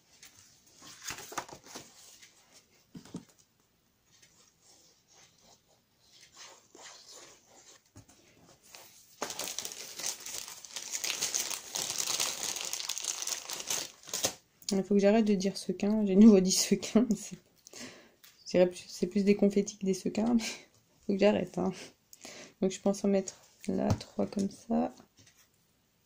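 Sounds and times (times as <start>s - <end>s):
paper rustling: 0.2s - 3.3s, 8.0s - 14.4s
plastic packet crinkling: 9.2s - 14.4s.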